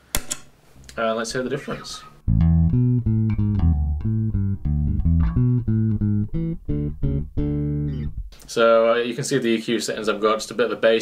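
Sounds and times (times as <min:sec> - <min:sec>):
electric bass guitar plucked notes: 0:02.2 - 0:08.5.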